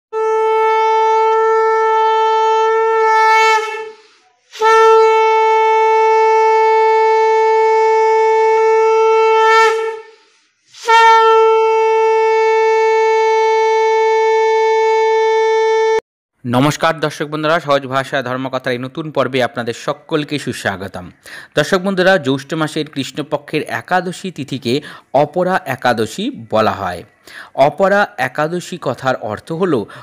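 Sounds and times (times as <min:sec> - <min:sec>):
conch shell blasts: 0:00.2 - 0:04.0, 0:04.6 - 0:10.1, 0:10.8 - 0:16.0.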